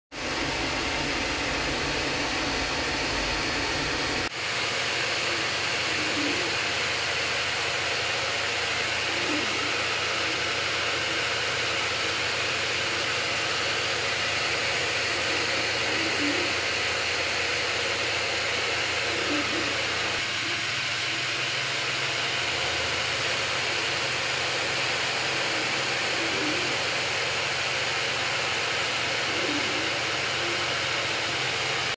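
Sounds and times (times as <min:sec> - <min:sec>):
cooling fans whirring: 0:00.1 - 0:31.9
low motor hum: 0:00.2 - 0:04.3.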